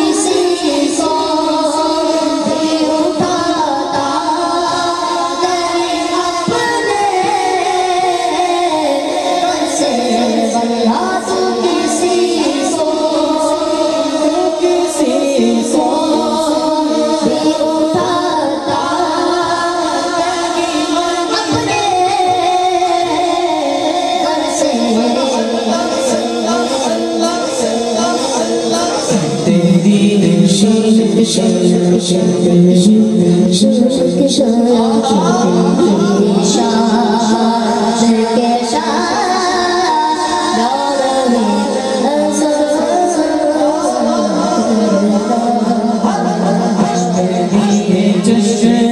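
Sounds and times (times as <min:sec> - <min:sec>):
boy singing over loudspeaker: 0:00.0 - 0:48.9.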